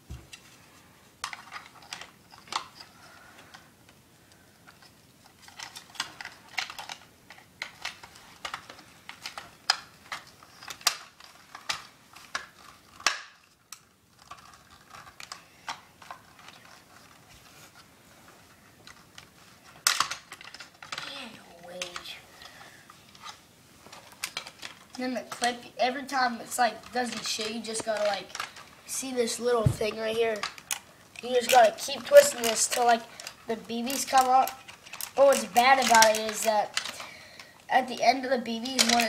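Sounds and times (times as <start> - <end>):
toy gun clicks and plastic knocks: 4.7 - 16.8, 18.8 - 21.1, 29.5 - 37.5, 38.6 - 39.0.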